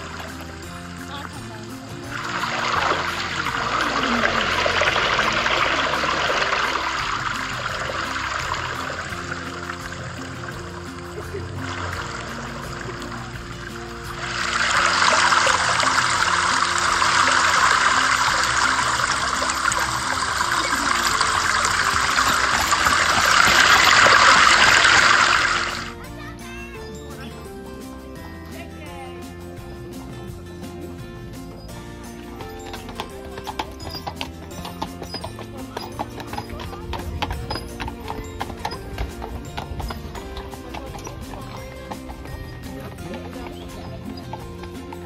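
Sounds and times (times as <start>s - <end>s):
running water rushing: 0.0s - 26.0s
soft background music: 0.0s - 45.0s.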